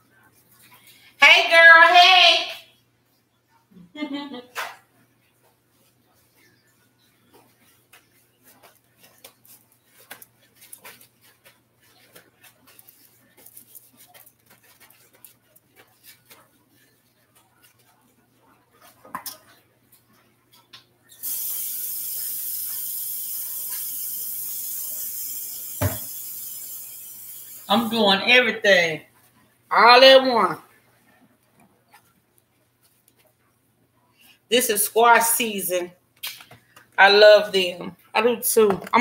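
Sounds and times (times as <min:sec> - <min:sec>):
water running into sink: 0:21.2 - 0:27.7.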